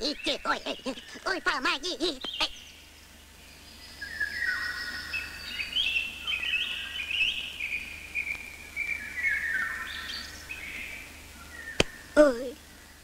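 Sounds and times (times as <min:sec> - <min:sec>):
bird-like chirping and whistling: 0:03.8 - 0:12.1.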